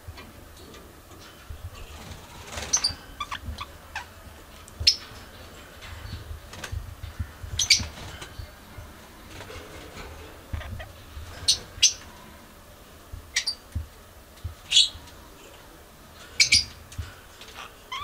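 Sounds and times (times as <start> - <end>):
budgerigars chirping: 2.7 - 4.1.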